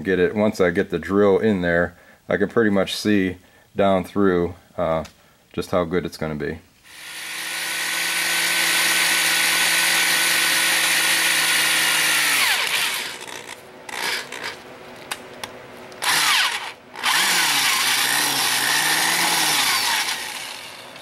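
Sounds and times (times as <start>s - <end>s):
electric drill boring into metal: 6.9s - 14.6s, 16.0s - 21.0s.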